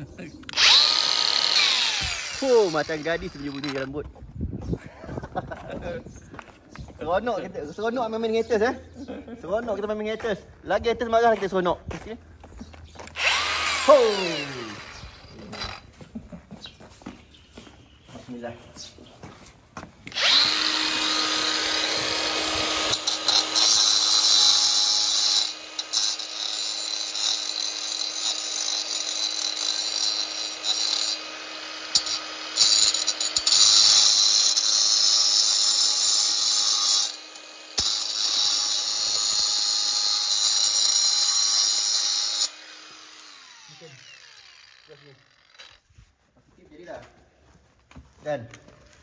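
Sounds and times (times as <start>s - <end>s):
angle grinder grinding metal: 0.4s - 4.0s, 13.0s - 16.0s, 20.1s - 45.9s.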